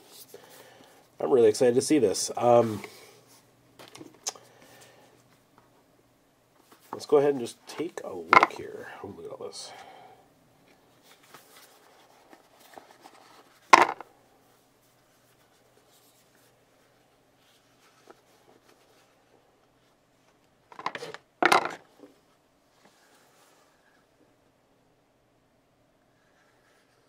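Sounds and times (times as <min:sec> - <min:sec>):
paper rustling: 0:11.0 - 0:14.0.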